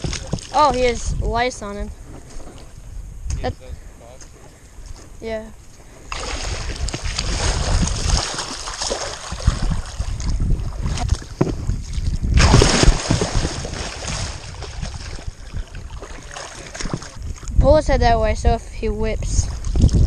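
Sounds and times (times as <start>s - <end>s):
large fish thrashing in shallow water: 0.0s - 1.4s, 6.0s - 17.6s.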